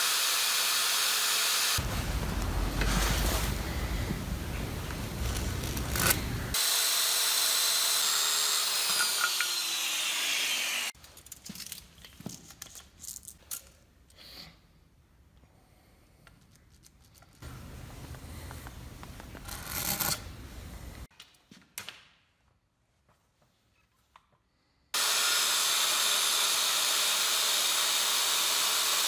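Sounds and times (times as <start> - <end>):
power saw motor winding down: 5.9 - 10.9, 25.0 - 29.0.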